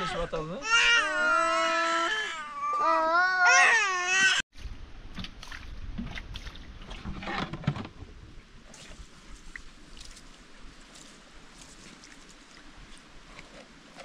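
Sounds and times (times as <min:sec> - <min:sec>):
baby crying: 0:00.0 - 0:04.4.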